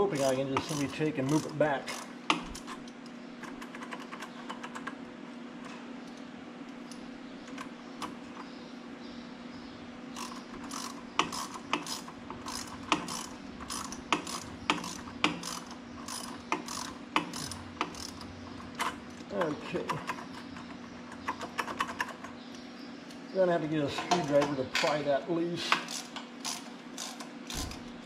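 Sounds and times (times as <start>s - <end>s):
socket ratchet clicking: 10.2s - 19.0s, 25.8s - 27.8s.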